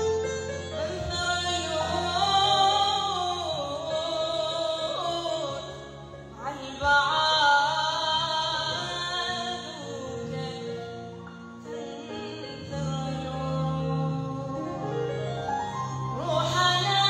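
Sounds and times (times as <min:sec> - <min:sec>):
woman singing into microphone: 0:00.2 - 0:17.0.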